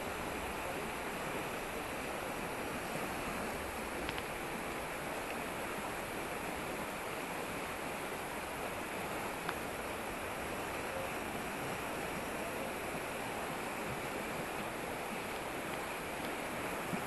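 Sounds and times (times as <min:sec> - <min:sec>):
river rushing over stones: 0:00.0 - 0:17.0
faint tick: 0:04.0 - 0:04.3, 0:09.4 - 0:09.6, 0:14.6 - 0:17.0.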